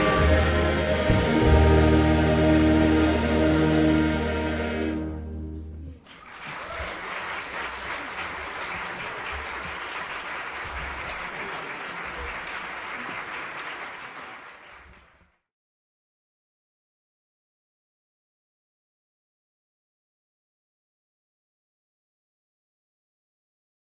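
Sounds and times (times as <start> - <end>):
choir and big band final chord: 0.0 - 5.7
audience applauding: 6.0 - 15.3.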